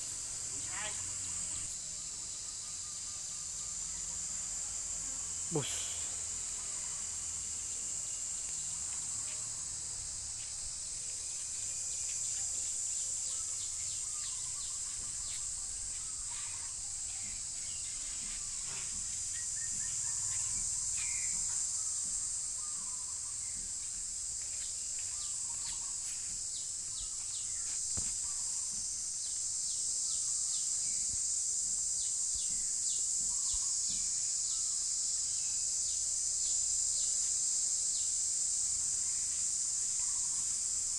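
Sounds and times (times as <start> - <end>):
insects droning: 0.0 - 40.9
bird chirps: 12.3 - 23.6.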